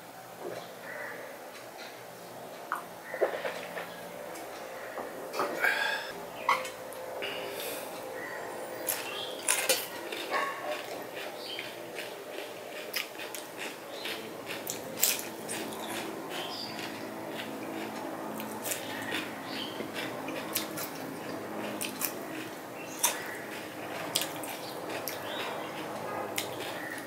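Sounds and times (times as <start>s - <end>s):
crisp food crunching: 8.9s - 27.0s.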